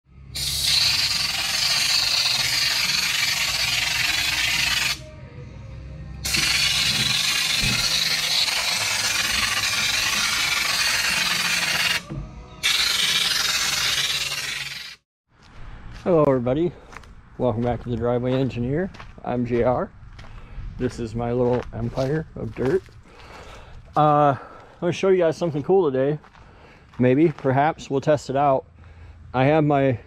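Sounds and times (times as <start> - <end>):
spray gun hissing: 0.3 - 5.0, 6.2 - 12.0, 12.6 - 15.0.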